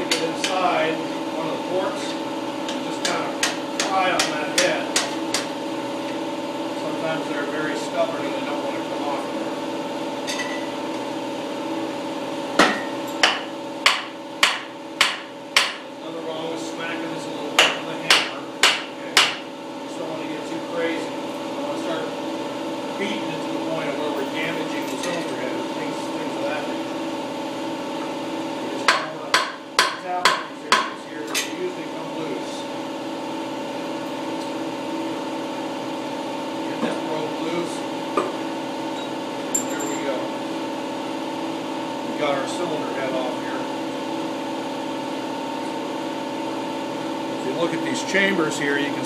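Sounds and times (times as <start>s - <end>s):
steady mechanical hum: 0.0s - 49.0s
hammer striking metal: 12.6s - 15.8s, 17.6s - 19.4s, 28.9s - 31.5s.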